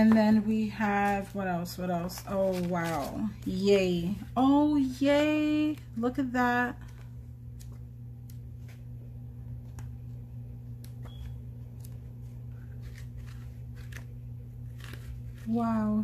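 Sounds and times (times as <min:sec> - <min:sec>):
notepad pages rustling: 0:00.0 - 0:16.0
steady low hum: 0:00.0 - 0:16.0.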